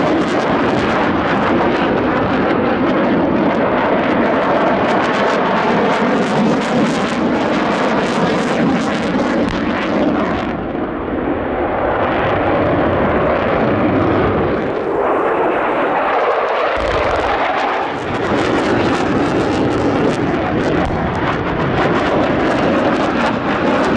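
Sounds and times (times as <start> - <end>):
jet engine roar: 0.0 - 23.9
deep pyrotechnic thump: 16.8 - 18.6.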